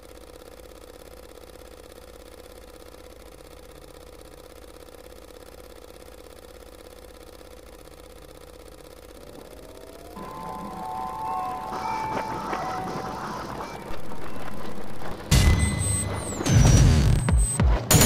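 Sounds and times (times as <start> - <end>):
droning hum: 0.0 - 18.0
tone gliding upward: 9.2 - 15.2
music: 10.2 - 13.8, 15.4 - 18.0.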